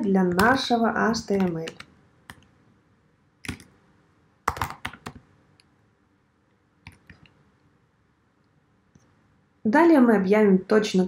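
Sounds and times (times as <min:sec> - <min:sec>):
typing on computer keyboard: 0:03.4 - 0:03.7, 0:04.4 - 0:05.2, 0:06.8 - 0:07.3.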